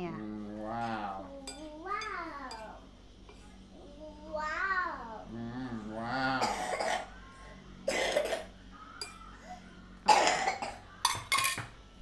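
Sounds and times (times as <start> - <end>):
person coughing: 6.4 - 7.1, 7.9 - 8.5, 10.1 - 10.8.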